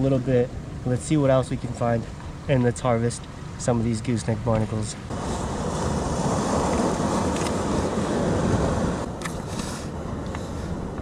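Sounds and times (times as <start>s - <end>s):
wind: 0.0s - 11.0s
surf on rocky shore: 5.0s - 11.0s.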